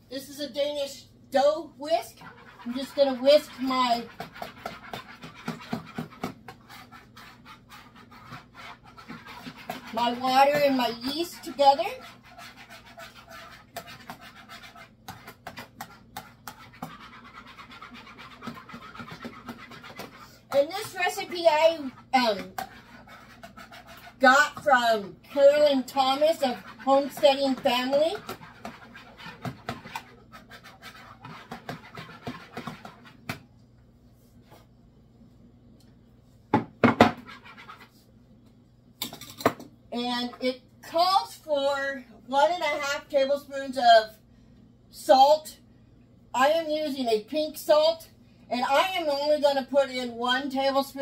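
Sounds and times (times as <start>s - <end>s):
whisk scraping plastic bowl: 1.4s - 33.4s, 36.8s - 38.0s, 48.6s - 51.0s.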